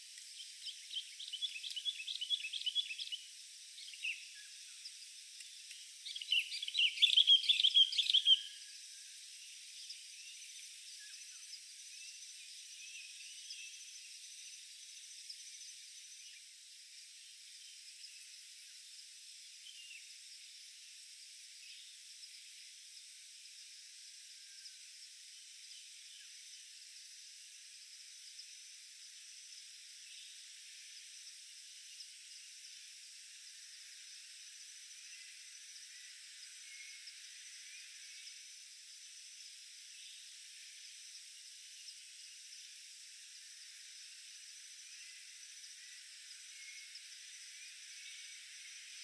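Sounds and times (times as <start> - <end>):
soft hiss: 0.0 - 7.2
insects buzzing: 0.0 - 49.0.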